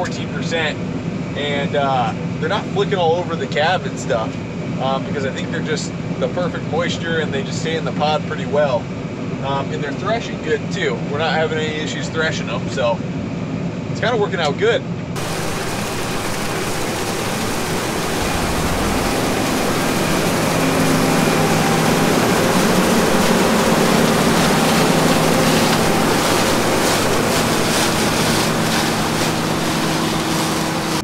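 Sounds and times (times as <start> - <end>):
combine harvester roaring: 14.9 - 31.0.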